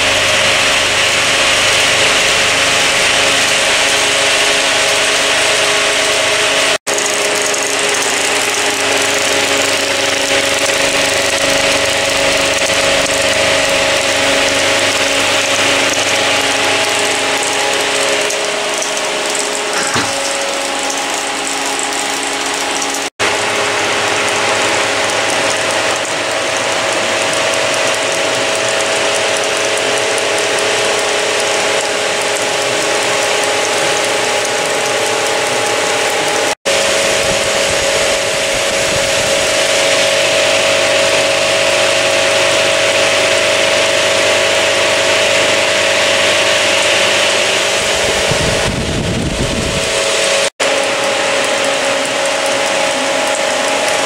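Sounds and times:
film projector clattering: 0.0s - 37.6s, 49.9s - 54.0s.

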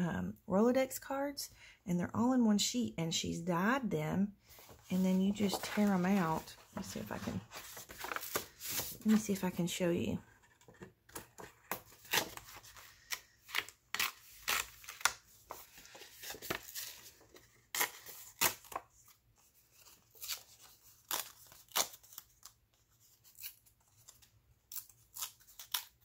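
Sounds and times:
paper ripping and crackling: 4.8s - 9.4s, 11.7s - 19.1s, 19.7s - 26.0s.

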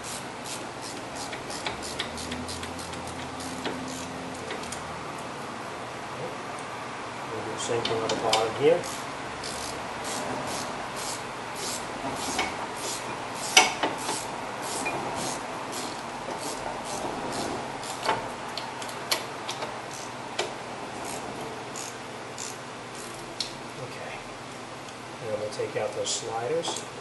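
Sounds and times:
wrench ratcheting: 0.4s - 4.8s, 8.3s - 18.1s, 19.9s - 20.1s, 21.0s - 21.2s, 21.8s - 23.2s.

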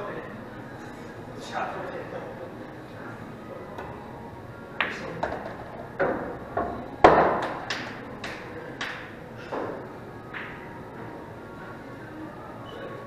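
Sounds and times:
pool balls clicking: 4.8s - 11.1s.

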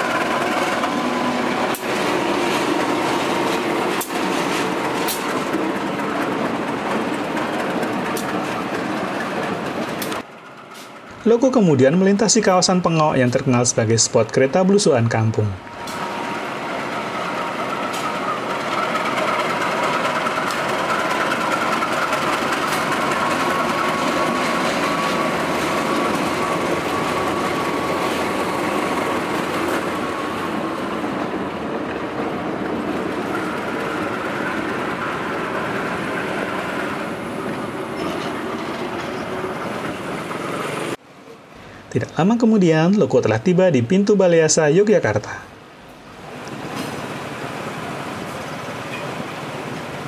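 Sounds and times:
wheels on rail track: 0.0s - 43.0s, 45.3s - 50.0s
diesel locomotive engine: 0.0s - 50.0s.

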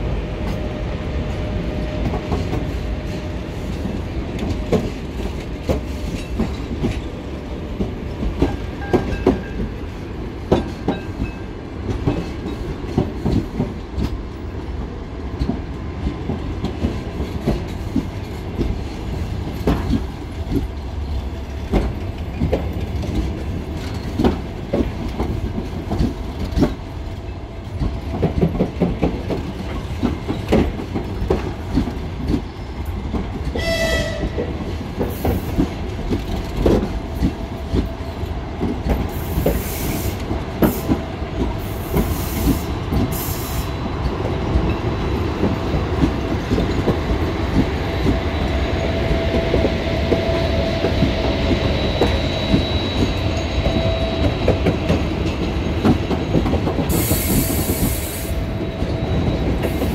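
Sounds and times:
train wheels clacking over rail joints: 2.0s - 14.2s, 15.3s - 59.9s
train horn toot: 33.5s - 34.5s
wheel squeal: 51.4s - 54.4s.

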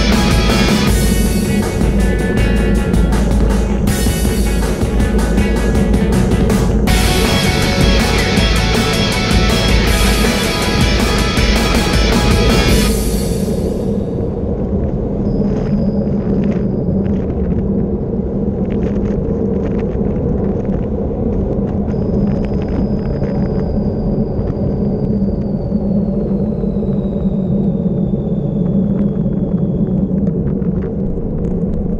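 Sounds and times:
tyre road rumble: 0.0s - 31.9s
wind buffeting microphone: 0.0s - 31.9s
faint high whistle: 21.9s - 30.1s.

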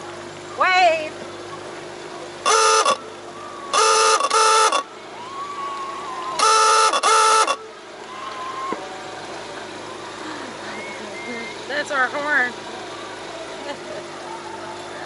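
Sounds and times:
boat horn short blasts: 2.4s - 5.0s, 6.4s - 7.8s.

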